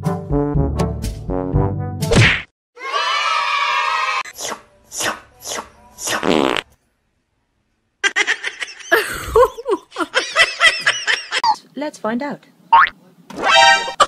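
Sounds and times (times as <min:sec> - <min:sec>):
fart-like sound: 0:06.1 - 0:06.7.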